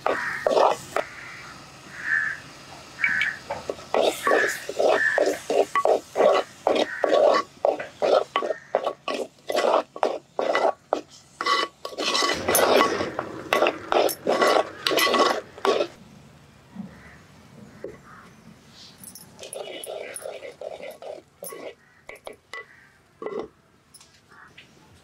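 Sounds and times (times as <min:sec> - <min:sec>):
wooden spatula scraping clay pot: 0:00.0 - 0:01.1, 0:03.7 - 0:16.0, 0:19.4 - 0:23.5.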